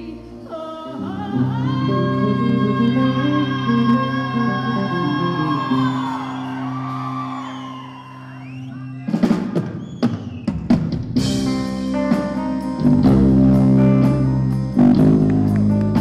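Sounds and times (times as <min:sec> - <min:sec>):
woman singing: 0:00.0 - 0:06.1
live rock band playing: 0:01.6 - 0:16.0.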